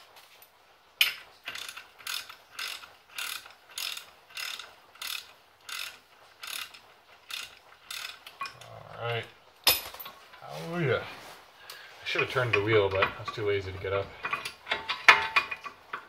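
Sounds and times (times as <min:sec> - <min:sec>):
ratchet wrench clicking: 0:01.0 - 0:08.7.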